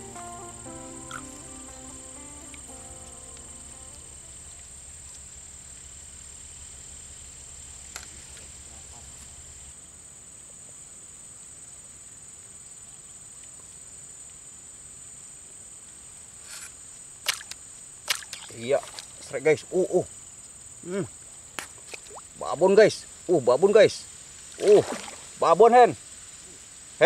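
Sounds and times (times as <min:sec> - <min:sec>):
high-pitched insect drone: 0:00.0 - 0:09.7
low hum: 0:00.0 - 0:09.8.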